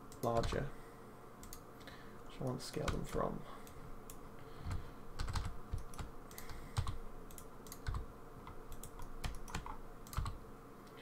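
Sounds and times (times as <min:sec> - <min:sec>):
keyboard keys tapping: 0:04.6 - 0:10.4.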